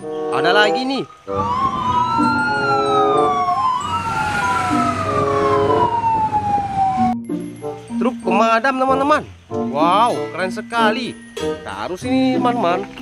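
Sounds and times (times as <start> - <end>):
fire engine siren wailing: 0.0 - 7.3
second siren: 1.3 - 7.2.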